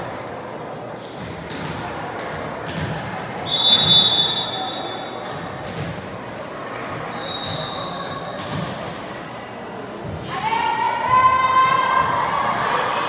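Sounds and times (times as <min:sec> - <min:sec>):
referee's whistle blasts: 0:03.4 - 0:05.3, 0:07.1 - 0:08.4
ball bouncing on hardwood floor: 0:05.3 - 0:06.0.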